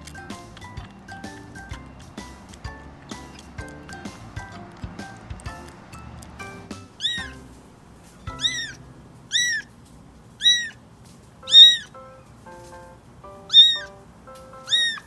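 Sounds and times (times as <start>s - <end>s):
kitten meowing: 6.9s - 7.6s, 8.2s - 9.7s, 10.4s - 10.8s, 11.5s - 11.9s, 13.5s - 14.0s, 14.6s - 15.0s.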